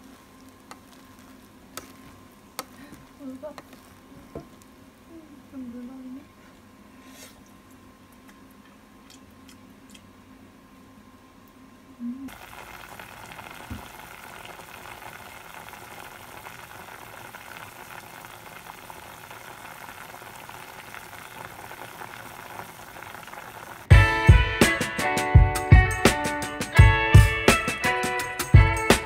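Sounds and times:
liquid bubbling and sizzling in pot: 0:00.0 - 0:05.5, 0:12.3 - 0:23.9.

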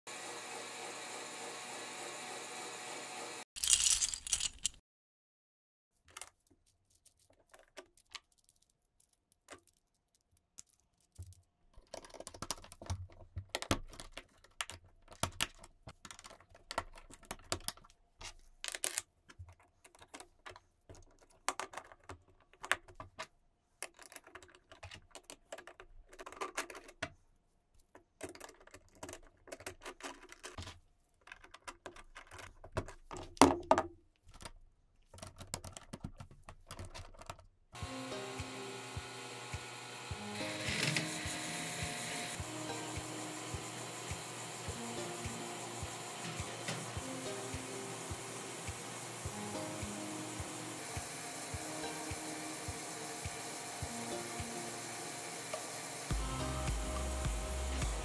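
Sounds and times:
plastic parts clicking and rattling: 0:03.6 - 0:04.8, 0:06.0 - 0:27.2, 0:27.8 - 0:37.6.

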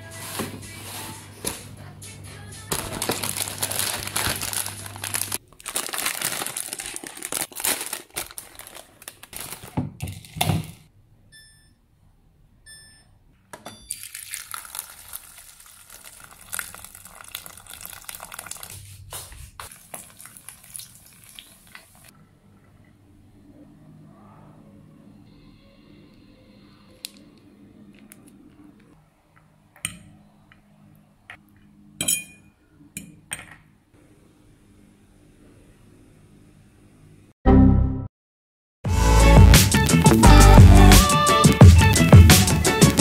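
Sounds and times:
plastic packaging crinkling: 0:02.7 - 0:10.8, 0:14.0 - 0:21.8, 0:41.3 - 0:43.0.

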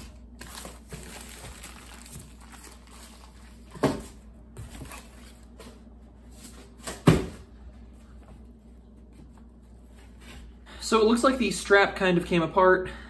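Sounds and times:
packaging rustling: 0:00.0 - 0:03.8.

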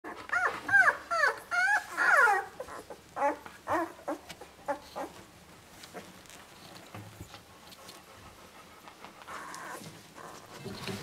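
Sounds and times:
puppies whimpering: 0:00.1 - 0:05.2.

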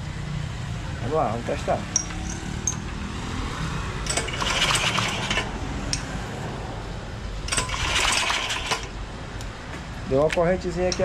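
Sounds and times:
recoil pull starter whirring: 0:04.0 - 0:06.0, 0:07.5 - 0:09.0.

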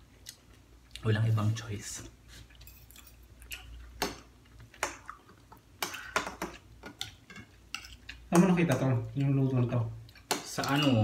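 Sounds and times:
cutlery clinking on bowls: 0:05.8 - 0:09.3, 0:10.1 - 0:11.0.

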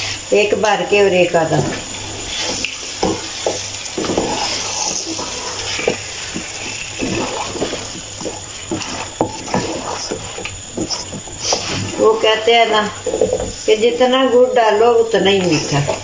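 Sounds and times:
wooden spatula scraping a pot: 0:01.5 - 0:16.0
meat sizzling: 0:01.8 - 0:13.7.

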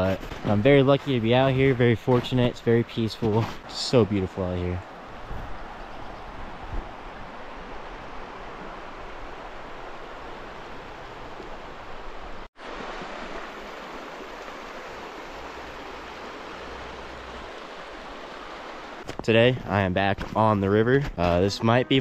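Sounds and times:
river rushing over cobbles: 0:06.4 - 0:19.2.

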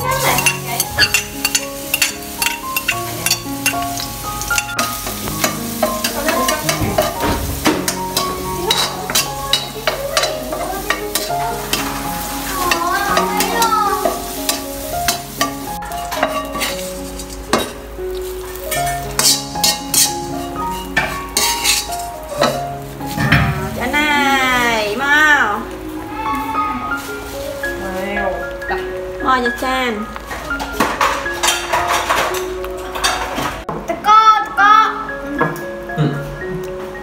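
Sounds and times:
garlic sizzling in oil: 0:00.0 - 0:30.4
metal spoon scraping pan: 0:07.8 - 0:12.0, 0:12.6 - 0:17.8, 0:18.7 - 0:22.6.

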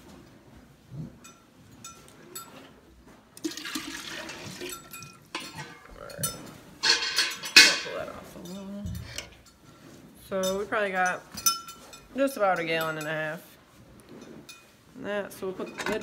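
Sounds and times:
milk pouring and splashing into can: 0:03.4 - 0:04.8
light metal clinks: 0:04.7 - 0:09.6, 0:10.3 - 0:13.3.

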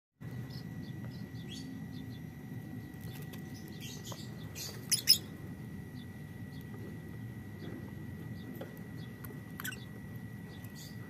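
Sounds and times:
lovebirds chirping: 0:00.2 - 0:06.8, 0:07.5 - 0:11.0
steady low rumble: 0:00.2 - 0:11.0.

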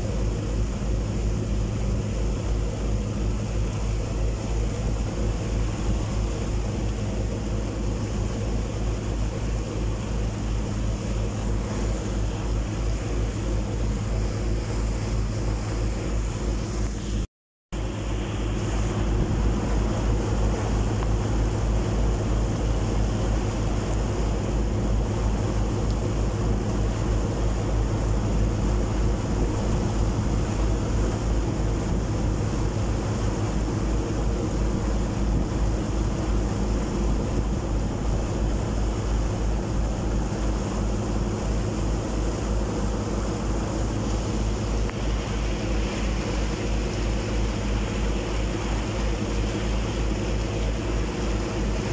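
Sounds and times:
churning wake water: 0:00.0 - 0:51.9
ferry engine droning: 0:17.8 - 0:51.9
wind on microphone: 0:17.8 - 0:51.9.

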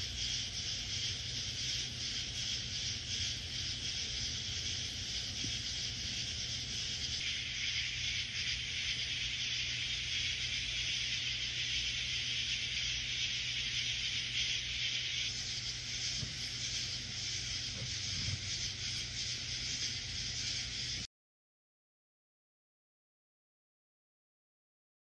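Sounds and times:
steady background hiss: 0:00.0 - 0:21.1.

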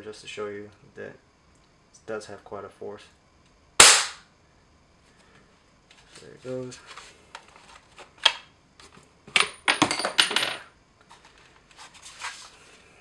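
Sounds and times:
metal clattering jingle: 0:09.4 - 0:10.7.

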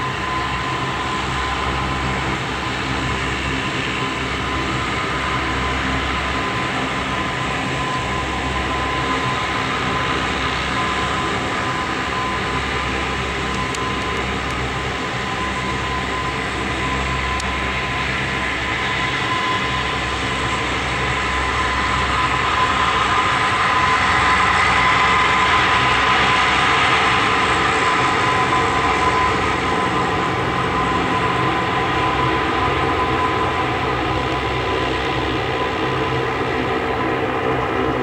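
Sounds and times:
turboprop aircraft engines: 0:00.0 - 0:38.0.

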